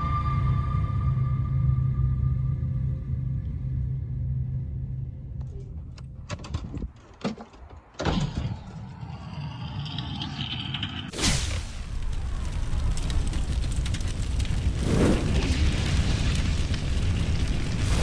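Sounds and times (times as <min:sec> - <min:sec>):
low droning intro music: 0:00.0 - 0:05.5.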